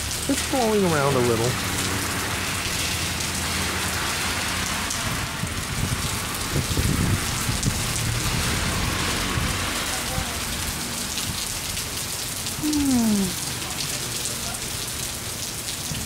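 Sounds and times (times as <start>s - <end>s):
heavy rain on asphalt: 0.0s - 16.0s.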